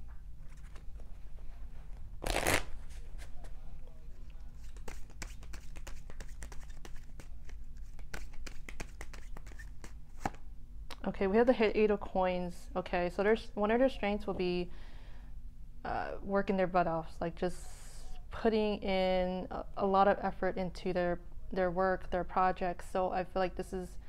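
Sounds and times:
cards being shuffled: 0.4s - 1.1s, 2.2s - 3.5s, 4.2s - 10.4s.

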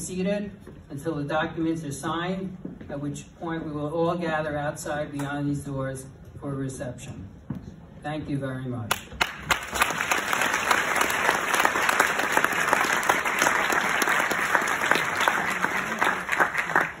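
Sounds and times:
audience applauding: 9.2s - 17.0s.

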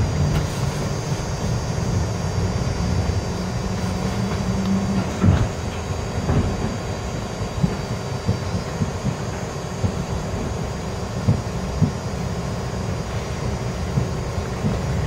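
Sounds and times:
low hum: 0.0s - 15.0s
subway train low rumble: 0.0s - 15.0s
wheels clunking on rails: 3.0s - 15.0s.

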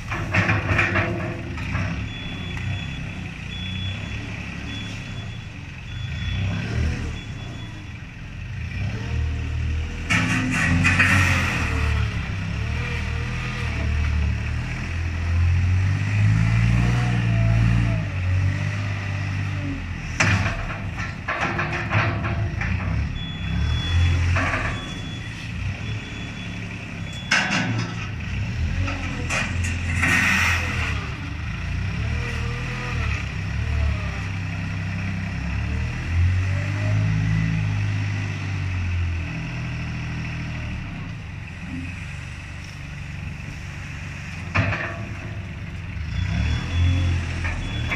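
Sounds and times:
reversing alarm beep: 2.0s - 8.0s, 23.1s - 27.5s, 46.1s - 47.9s
wheel loader engine revving: 8.4s - 47.9s.

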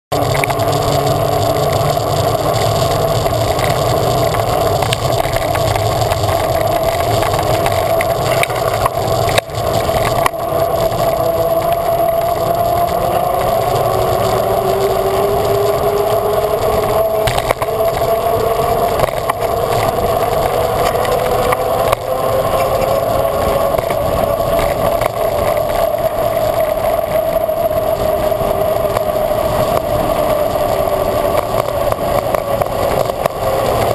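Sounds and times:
hum rising in pitch: 0.1s - 33.9s
steady hum: 0.1s - 33.9s
tyres rolling on wet tarmac: 0.1s - 33.9s
wind rushing over microphone: 0.1s - 33.9s.

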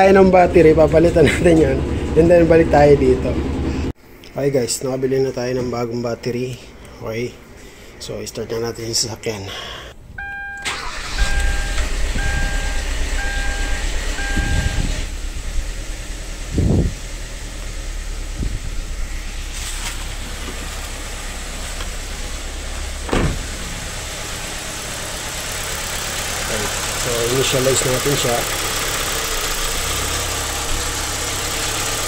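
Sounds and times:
car engine cranking and starting: 10.0s - 32.0s
dashboard warning chime beeping: 10.2s - 15.0s
engine thumps: 11.4s - 27.0s.

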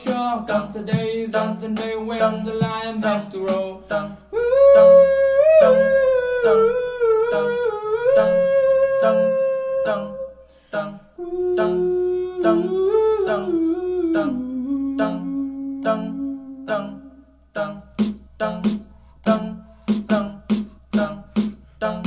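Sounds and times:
beatboxed kicks and snare clicks: 0.0s - 1.2s, 1.8s - 3.8s, 17.9s - 21.7s
person humming a melody: 0.0s - 22.0s.

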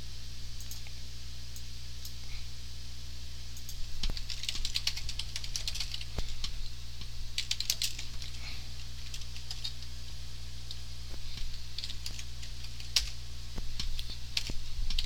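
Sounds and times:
steady low hum: 0.0s - 15.0s
computer keyboard typing: 3.6s - 9.9s, 10.7s - 15.0s.

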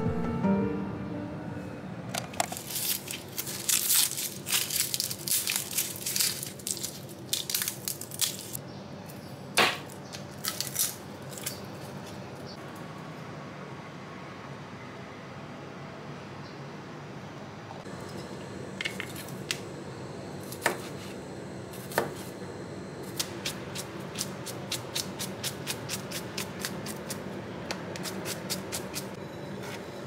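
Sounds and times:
garlic skins crackling: 2.4s - 8.6s, 9.8s - 12.4s.

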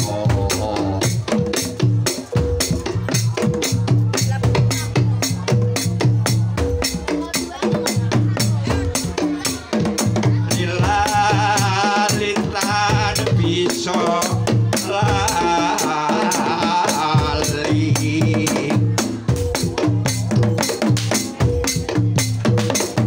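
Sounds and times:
gamelan ensemble playing: 0.0s - 14.0s.

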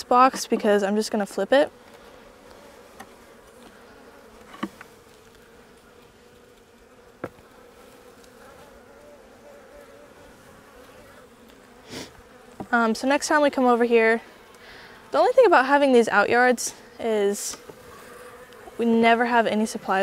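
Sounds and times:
honeybees buzzing: 0.0s - 20.0s
sharp knocks of wooden hive frames: 7.2s - 7.5s.

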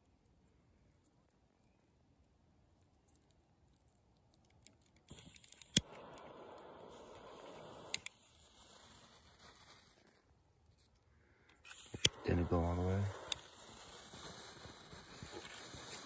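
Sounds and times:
lighter igniter click: 5.1s - 8.3s, 11.7s - 16.0s
gas flame hissing: 5.1s - 10.0s, 11.7s - 16.0s.

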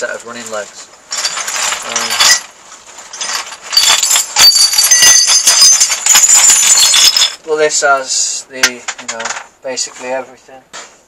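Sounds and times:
metal parts clinking and rattling: 1.1s - 7.4s.

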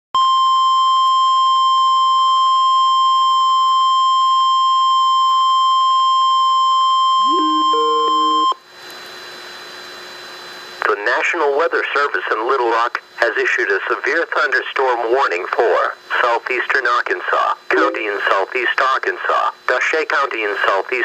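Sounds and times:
steady alert tone: 7.3s - 8.5s, 17.7s - 18.4s
warbling two-pitch tone: 7.3s - 8.6s, 17.7s - 18.3s
radio static hiss: 15.8s - 19.5s.

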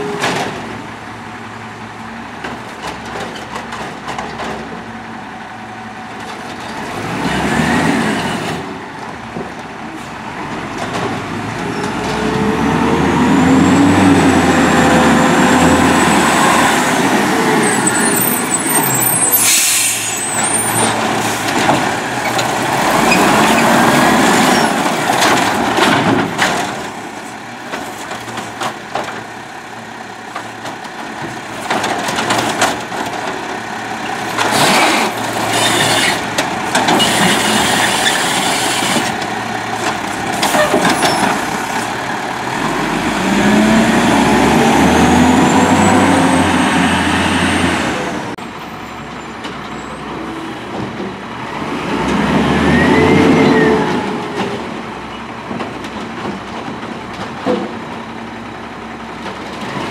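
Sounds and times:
air brake hiss: 19.4s - 20.3s.

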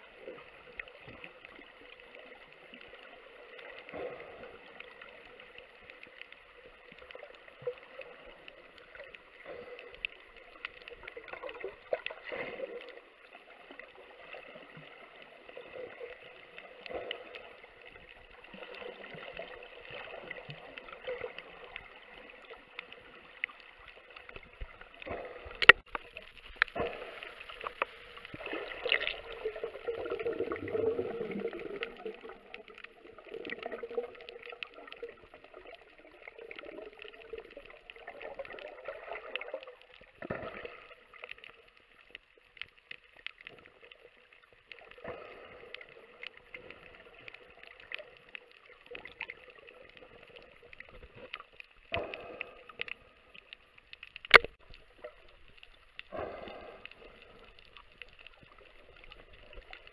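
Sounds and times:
small clicks: 36.9s - 56.1s
underwater hiss: 51.9s - 53.4s, 56.0s - 59.6s.

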